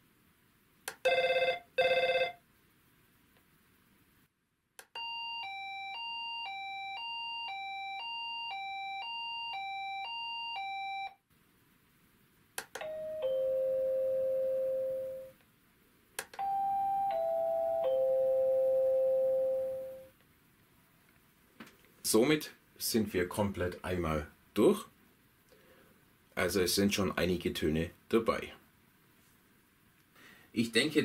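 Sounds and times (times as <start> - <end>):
electronic door chime tones: 5.0 - 11.2, 12.8 - 15.3, 16.4 - 20.1.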